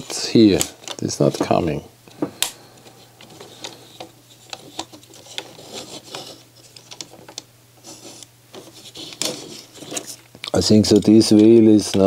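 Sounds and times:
plastic mechanism clicking and rubbing: 3.2 - 12.0.

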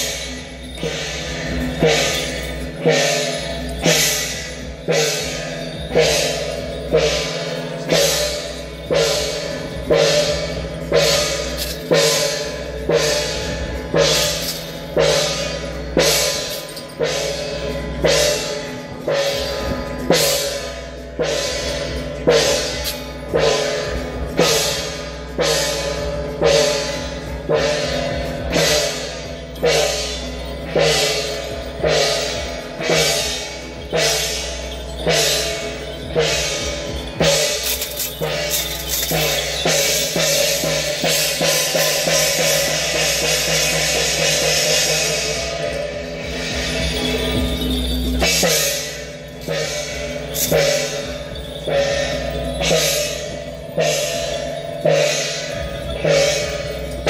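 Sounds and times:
cymbal and drum strikes: 0.0 - 57.0.

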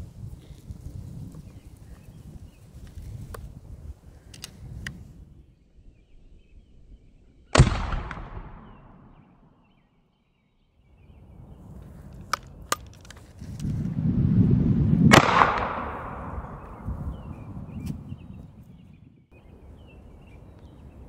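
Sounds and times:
sharp echoing bang: 7.6 - 9.2, 15.1 - 16.8.

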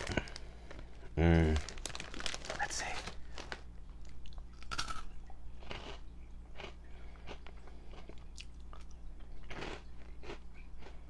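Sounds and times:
person chewing crunchy snacks: 0.0 - 11.0.

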